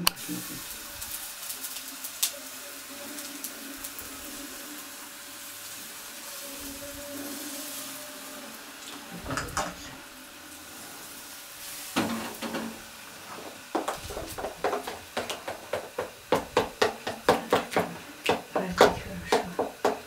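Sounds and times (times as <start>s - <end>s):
pan and dishes knocking: 12.0s - 12.8s, 13.7s - 20.0s
utensil knocking on bowl: 13.7s - 20.0s.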